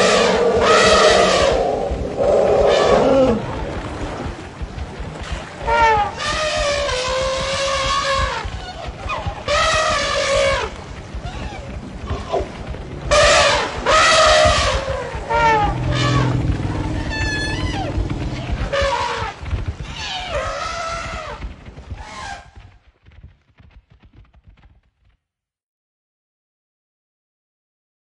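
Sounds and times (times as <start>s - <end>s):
high wavering cry: 0.0s - 3.6s.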